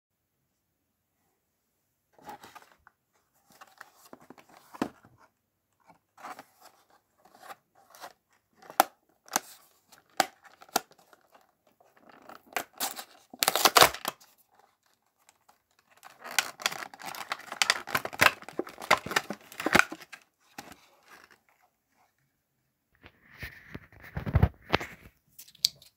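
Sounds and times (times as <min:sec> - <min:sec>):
plastic and foil crinkling: 0:08.7 - 0:21.4
plastic bag crinkling: 0:15.8 - 0:20.2.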